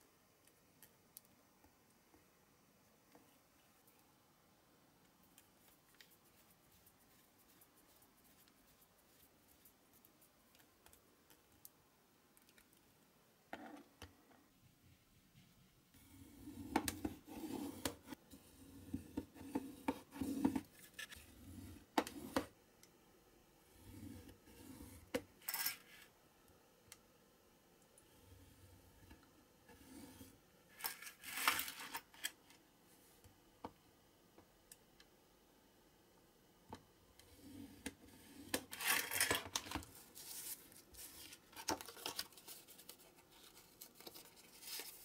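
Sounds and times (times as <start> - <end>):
faint small ticks of handwork: 0.3 - 2.3, 5.0 - 13.0.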